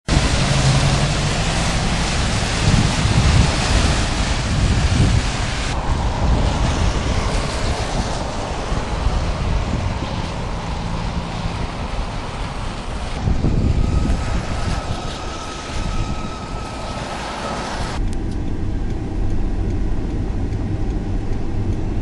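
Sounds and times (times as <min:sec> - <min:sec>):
steady rushing hiss: 0:00.1 - 0:22.0
wind buffeting microphone: 0:00.1 - 0:22.0.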